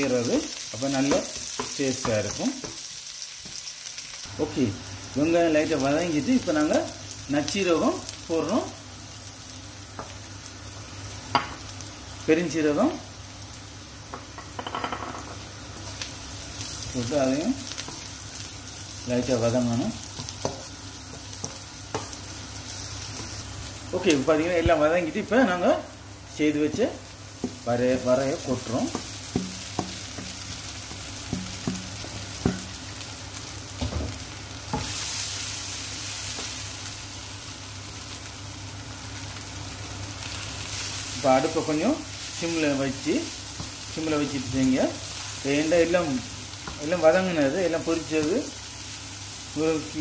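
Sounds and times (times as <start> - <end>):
food sizzling in oil: 0.0 - 50.0
spoon tapping and scraping a pan: 20.1 - 22.2, 28.9 - 32.7.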